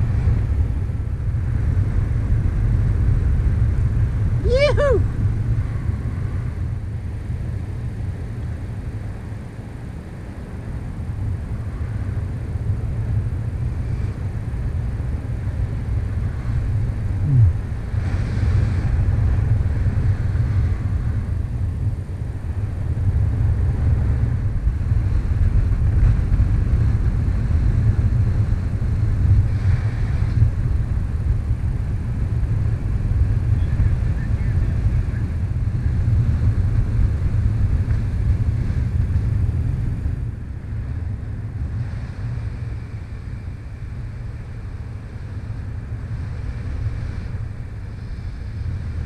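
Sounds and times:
wind rushing over microphone: 0.0 - 49.0
short falling tone: 17.2 - 17.6.

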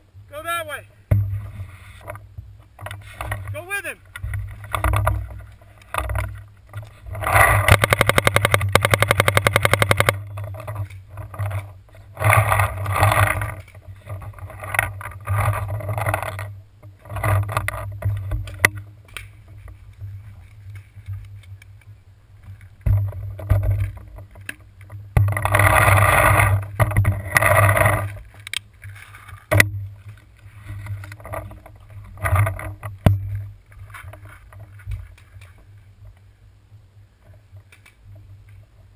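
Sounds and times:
sharp knocks: 1.1 - 2.2
camera handling rumble: 4.1 - 21.8
fast even rattle: 4.2 - 18.0.

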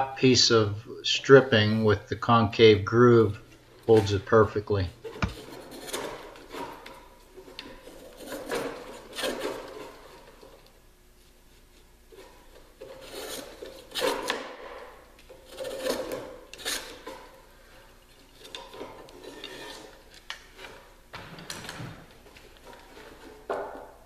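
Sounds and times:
hand plane shaving wood: 7.7 - 10.3, 12.2 - 14.4, 15.5 - 17.2, 18.6 - 20.8.

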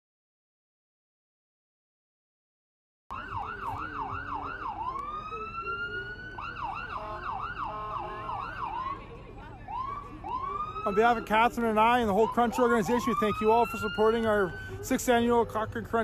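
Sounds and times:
emergency vehicle siren: 3.1 - 16.0.

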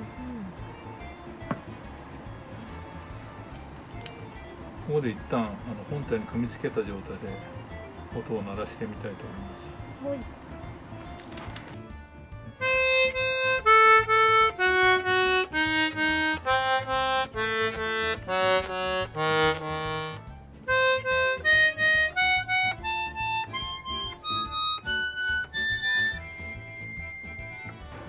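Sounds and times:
accordion notes: 12.0 - 28.0.

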